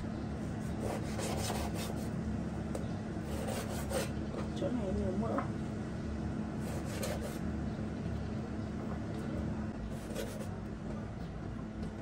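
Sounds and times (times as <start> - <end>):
steady low hum: 0.0 - 12.0
cleaver cutting on wooden board: 0.6 - 2.1, 3.3 - 4.1, 6.6 - 7.4.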